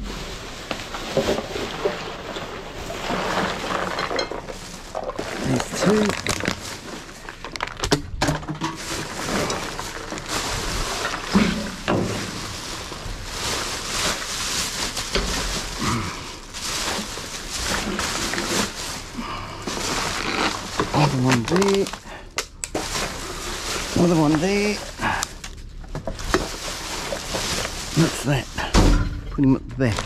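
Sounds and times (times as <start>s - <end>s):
plastic garbage bags rustling: 0.0s - 30.0s
rubbish knocking in dumpster: 7.8s - 16.0s, 25.8s - 30.0s.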